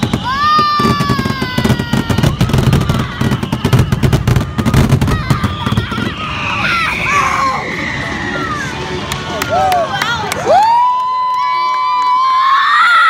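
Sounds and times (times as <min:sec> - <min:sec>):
fireworks bangs and crackling: 0:00.0 - 0:07.3
falling whistle: 0:00.0 - 0:08.7
crowd cheering: 0:00.0 - 0:13.0.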